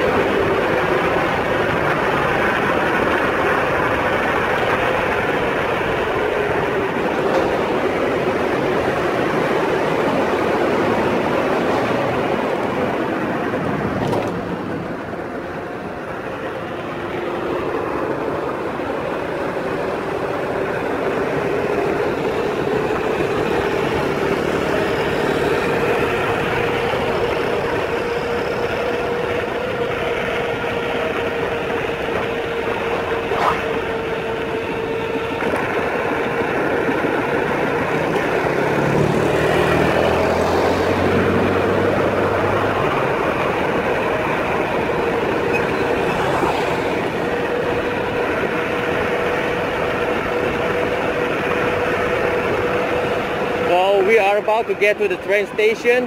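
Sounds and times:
motorcycle engine: 0.0s - 56.0s
road noise: 0.0s - 56.0s
wind: 0.0s - 56.0s.

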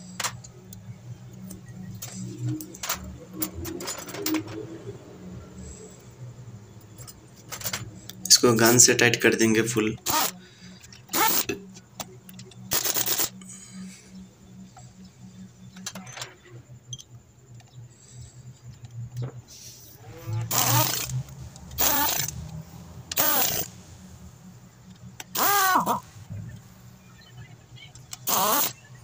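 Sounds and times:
steady low hum: 0.0s - 29.0s
impact wrench bursts: 10.0s - 11.6s, 12.3s - 14.0s, 20.1s - 24.0s, 25.1s - 26.6s, 28.0s - 28.8s.

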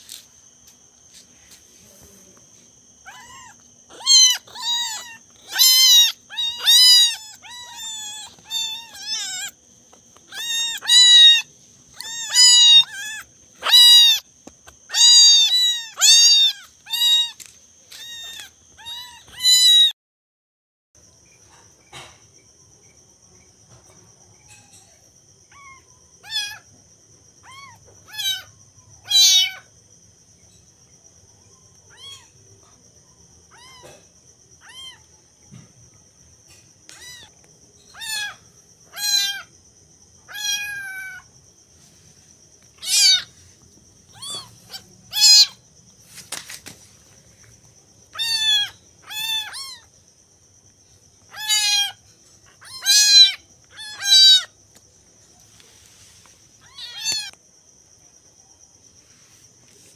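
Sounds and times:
kittens meowing: 3.0s - 14.3s, 14.9s - 19.9s, 25.5s - 26.7s, 27.4s - 29.7s, 31.9s - 32.4s, 33.5s - 34.0s, 34.6s - 35.1s, 36.9s - 39.5s, 40.2s - 41.3s, 42.7s - 43.4s, 44.0s - 45.6s, 48.1s - 49.9s, 51.2s - 54.5s, 56.6s - 57.4s.

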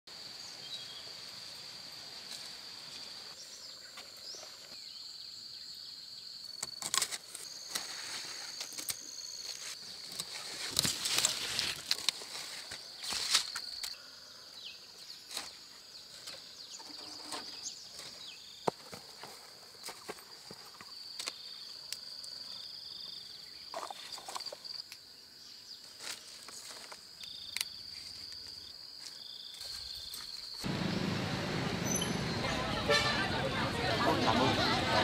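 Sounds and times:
loud full noise: 30.7s - 35.0s.

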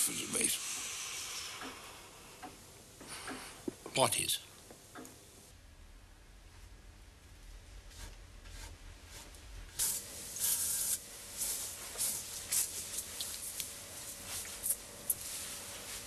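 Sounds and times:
hissing brush strokes on hair: 9.8s - 16.0s.

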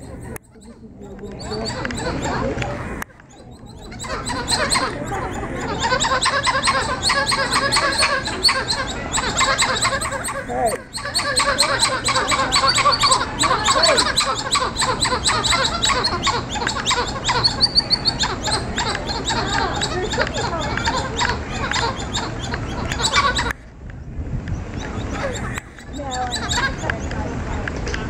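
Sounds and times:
monkeys chattering: 0.0s - 23.7s, 24.6s - 28.0s.

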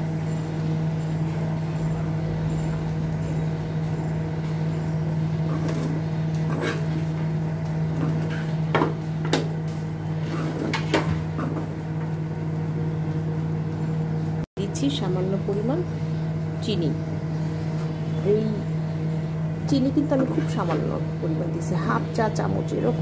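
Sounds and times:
steady low hum: 0.0s - 23.0s
spoon scraping frying pan: 5.5s - 7.1s.

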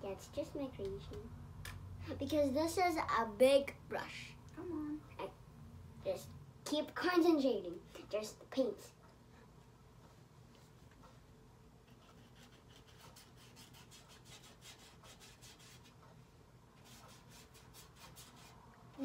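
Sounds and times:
paintbrush strokes on paper: 11.8s - 16.1s, 16.8s - 18.6s.

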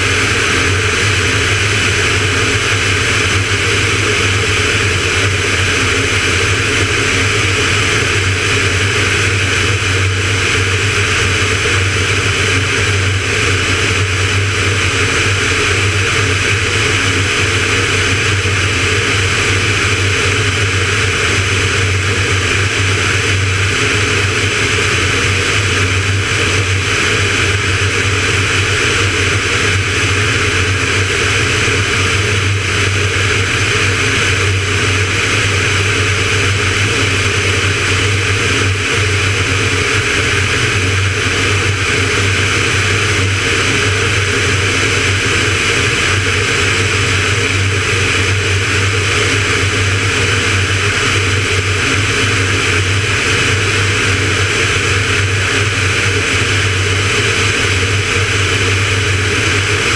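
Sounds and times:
aircraft engine drone: 0.0s - 59.9s.

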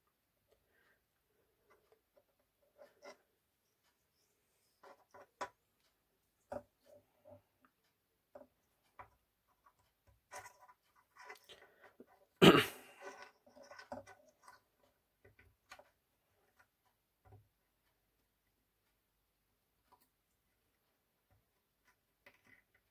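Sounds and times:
clicks and taps of wire handling: 13.0s - 17.5s, 21.3s - 22.9s.

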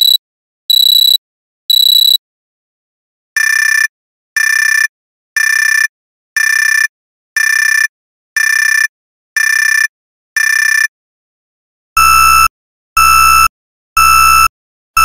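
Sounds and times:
warning buzzer beeping: 0.0s - 2.2s, 12.0s - 15.0s.

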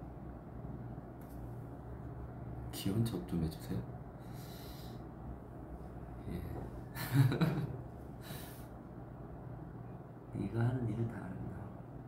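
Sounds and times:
breathy exhale: 4.2s - 5.1s.

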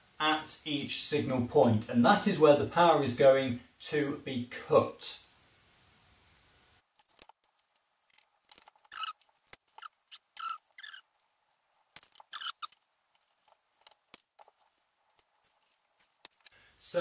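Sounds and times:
faint metal squeaks: 8.8s - 9.2s, 12.2s - 12.8s.

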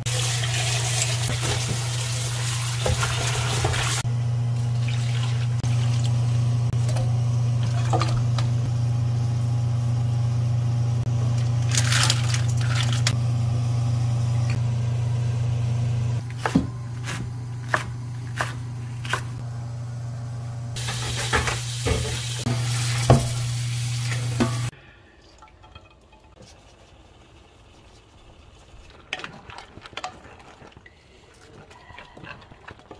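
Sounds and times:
steady low hum: 4.0s - 20.8s.

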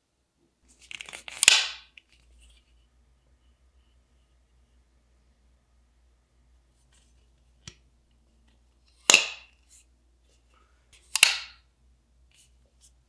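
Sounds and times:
folding knife blade snapping into place: 11.1s - 11.6s.

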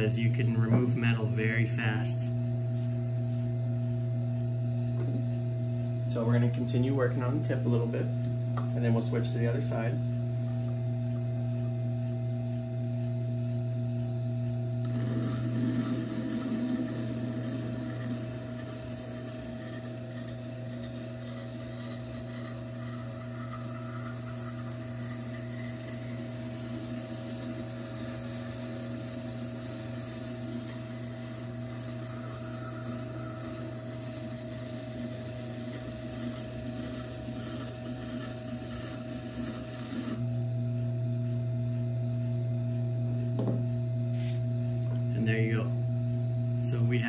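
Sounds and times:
grinder motor hum: 0.0s - 47.0s
knife blade grinding on stone: 14.9s - 34.1s.

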